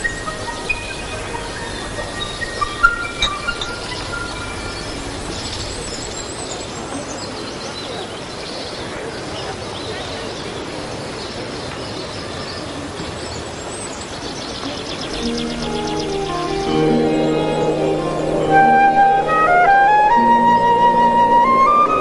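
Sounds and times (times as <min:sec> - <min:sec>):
faint high chirps: 0:00.0 - 0:07.0, 0:14.7 - 0:20.2.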